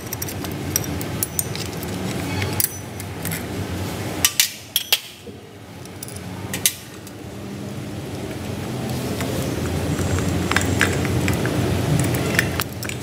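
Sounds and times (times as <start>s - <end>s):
socket wrench clinking on metal: 0.0s - 3.5s.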